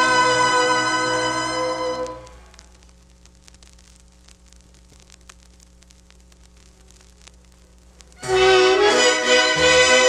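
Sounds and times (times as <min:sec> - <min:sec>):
strings holding long chord: 0:00.0 - 0:02.3, 0:08.2 - 0:10.0.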